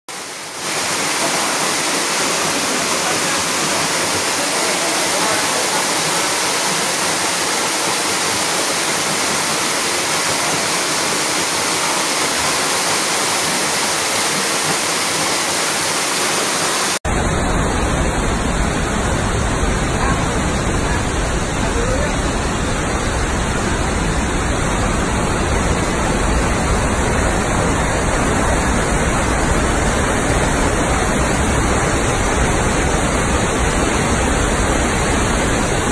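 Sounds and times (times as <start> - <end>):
waterfall rushing: 0.1 - 35.9.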